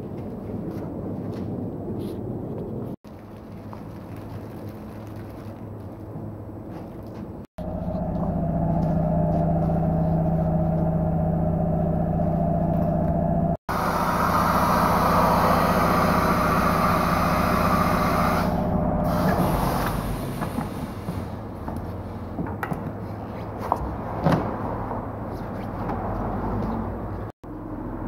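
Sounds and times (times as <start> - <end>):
low mechanical hum: 3.1 - 22.5
air hissing from hose: 13.7 - 21.3.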